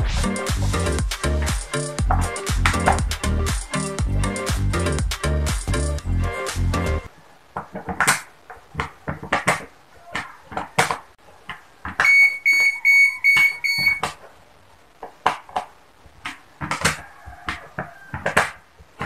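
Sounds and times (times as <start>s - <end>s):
quick electronic beeps: 12.0s - 14.1s.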